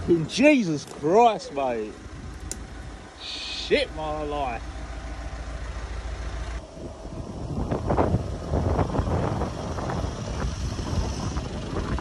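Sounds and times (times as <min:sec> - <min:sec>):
wind buffeting microphone: 0:06.6 - 0:12.0.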